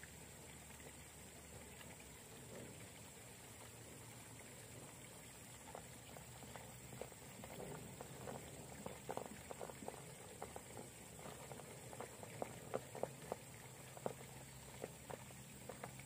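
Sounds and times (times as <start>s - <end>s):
toy car tyres clicking over rock: 5.6s - 16.0s.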